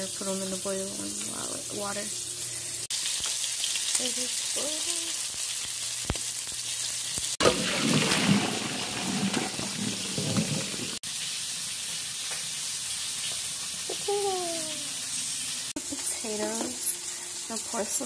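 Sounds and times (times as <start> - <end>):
water pouring through a colander: 7.4 - 11.1
water boiling in a pot: 7.4 - 18.0.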